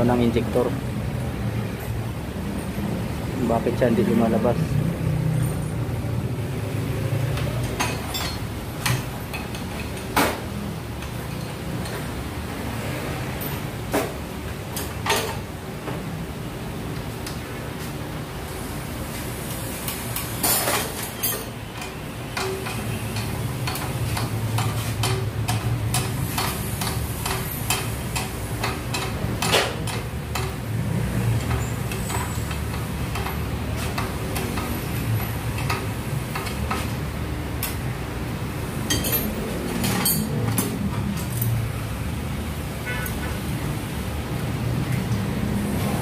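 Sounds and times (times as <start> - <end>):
metal clicks and clinks: 38.9 - 41.6.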